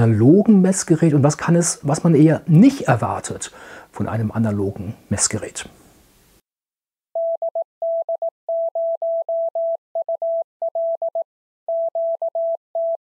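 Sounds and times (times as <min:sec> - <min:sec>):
morse code beeps: 0:07.2 - 0:13.0.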